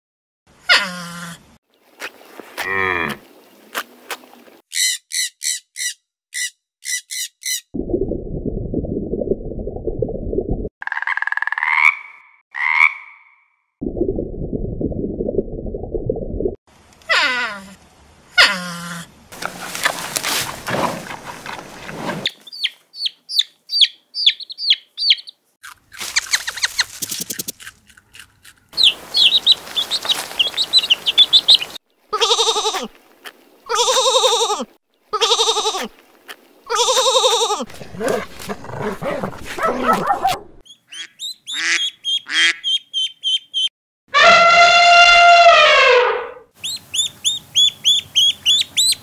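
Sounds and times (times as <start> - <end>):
ducklings peeping: 22.2 - 25.4, 28.8 - 31.8, 40.7 - 43.7, 46.6 - 49.0
high chirps: 28.8 - 31.8
sheep bleating: 35.2 - 35.9.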